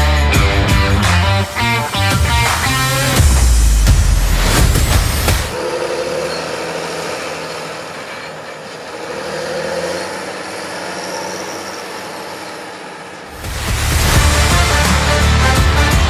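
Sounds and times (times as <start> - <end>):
music: 0.0 - 5.6, 13.3 - 16.0
tractor engine running: 0.0 - 16.0
trailer rolling: 0.0 - 16.0.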